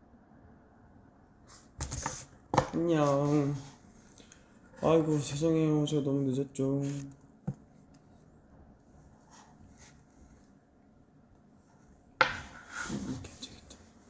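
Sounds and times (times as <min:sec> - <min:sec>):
faint rubbing and rustling: 0:01.5 - 0:05.6, 0:06.7 - 0:10.6, 0:11.5 - 0:14.0.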